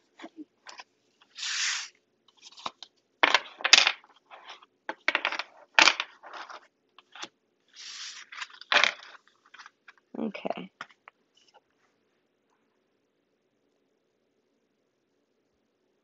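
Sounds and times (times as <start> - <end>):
cards tapping and knocking: 2.5 - 4.1, 4.9 - 7.3.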